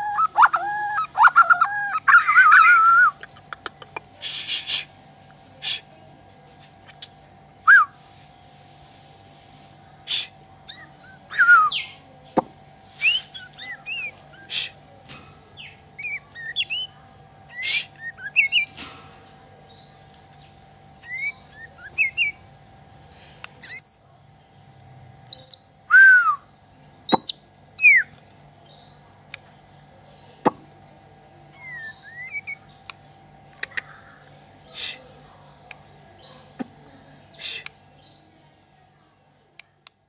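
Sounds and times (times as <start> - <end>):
bird singing whistled notes: 10.7 - 12.0, 25.3 - 26.5, 31.5 - 32.6
bird clicking notes: 32.8 - 34.1.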